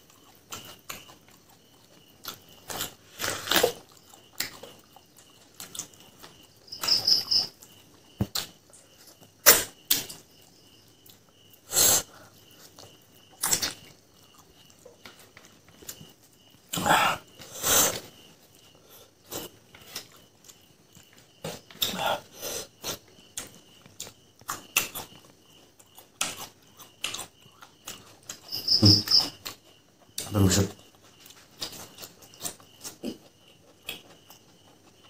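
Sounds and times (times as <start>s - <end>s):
person chewing meat: 0.0s - 6.7s, 22.7s - 28.5s.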